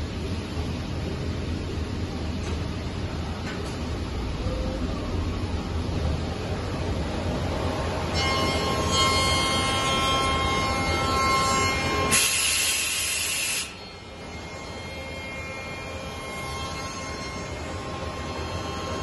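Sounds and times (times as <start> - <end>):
timber machining spindle whine: 8.2 - 19.0.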